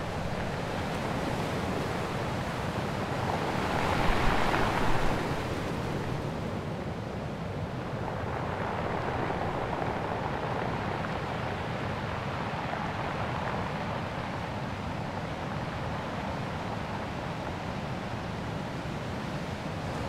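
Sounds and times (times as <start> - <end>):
wind noise on microphone: 0.0 - 14.3.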